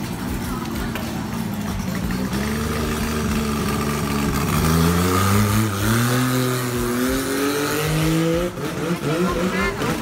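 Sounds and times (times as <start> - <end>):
motorboat engine running: 0.0 - 7.2.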